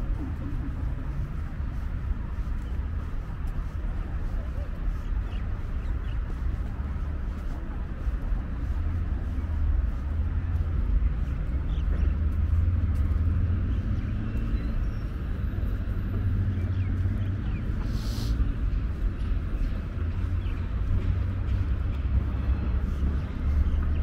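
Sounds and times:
distant traffic rumble: 0.0 - 24.0
cars hissing by: 15.7 - 18.9.

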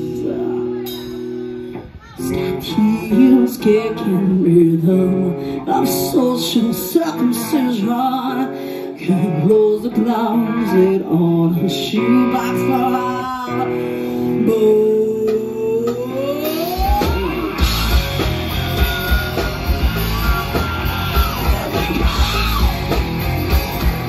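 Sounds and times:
bass guitar: 0.0 - 24.0
electric guitar: 0.0 - 24.0
woman singing lead vocal: 2.0 - 17.7.

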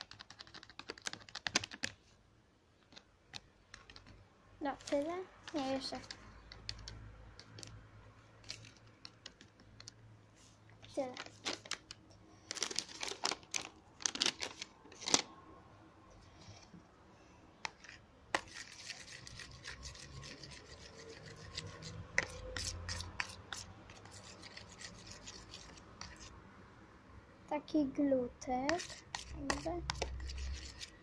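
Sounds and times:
metal spoon scraping plastic tub: 17.6 - 26.3, 28.7 - 31.0.

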